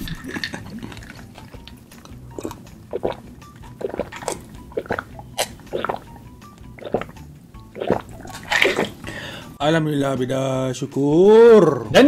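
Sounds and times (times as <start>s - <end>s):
person gulping water: 0.0s - 9.1s.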